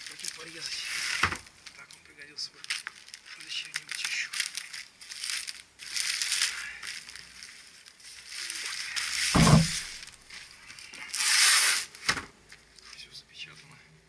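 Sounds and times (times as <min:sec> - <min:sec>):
plastic bag rustling: 0:00.0 - 0:01.8, 0:02.6 - 0:12.1
box thumping: 0:09.4 - 0:10.0.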